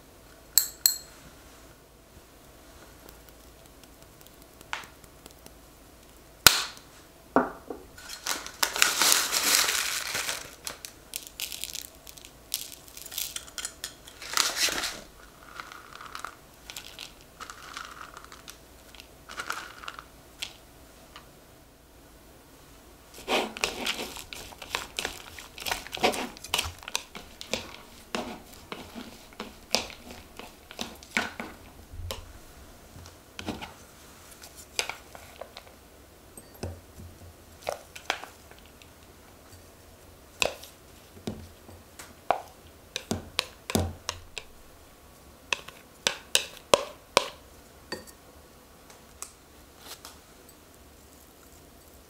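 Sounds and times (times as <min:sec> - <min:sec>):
moist rustling of food: 0:01.2 - 0:07.2, 0:08.0 - 0:21.2, 0:22.5 - 0:36.0, 0:36.8 - 0:47.8, 0:48.9 - 0:52.0
chopsticks clicking against bowls: 0:26.5 - 0:28.1.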